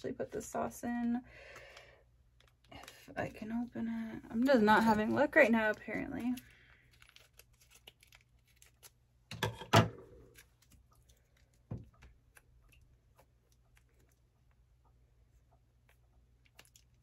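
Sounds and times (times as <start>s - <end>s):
plastic packet crinkling and tearing: 2.3s - 3.6s, 4.4s - 9.3s.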